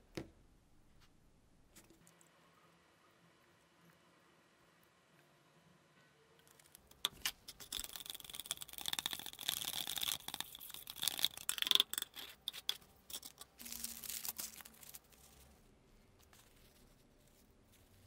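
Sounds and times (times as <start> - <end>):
paper sheets rustling: 13.5 - 18.0.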